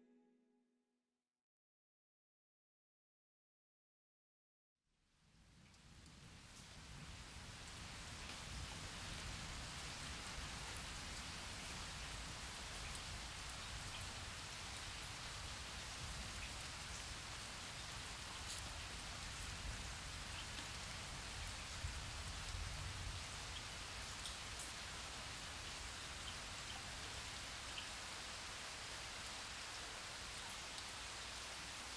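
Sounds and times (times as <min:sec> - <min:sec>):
steady rain hiss: 0:05.0 - 0:31.9.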